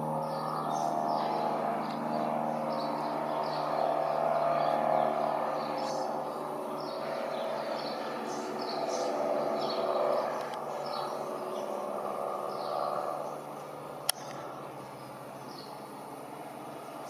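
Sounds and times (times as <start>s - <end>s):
airplane engine droning: 0.0s - 17.0s
birds chirping: 0.0s - 17.0s.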